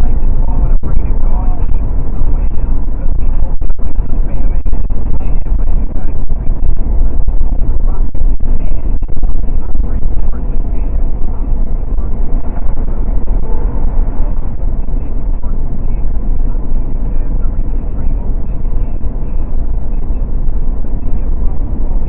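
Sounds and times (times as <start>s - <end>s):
car road and wind noise: 0.0s - 22.0s.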